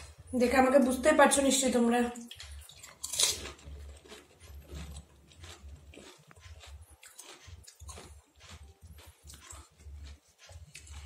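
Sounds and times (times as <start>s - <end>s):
wet chewing: 2.0s - 11.0s
crisp shell crunching: 2.6s - 8.1s.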